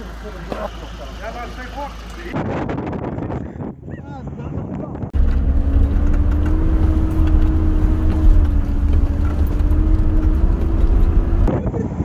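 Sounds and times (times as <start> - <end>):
car engine drone: 0.0 - 2.4, 5.2 - 11.5.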